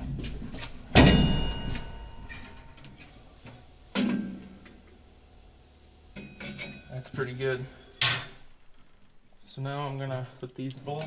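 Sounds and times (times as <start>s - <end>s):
metal clank ringing: 0.9s - 3.3s, 6.2s - 7.1s.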